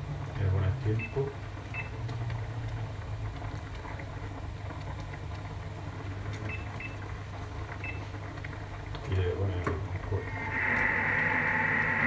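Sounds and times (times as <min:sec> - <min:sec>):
steady low hum: 0:09.9 - 0:12.0.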